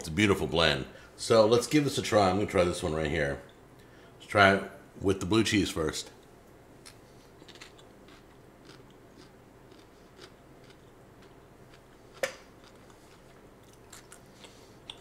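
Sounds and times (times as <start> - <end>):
person chewing crunchy food: 6.8 - 15.0.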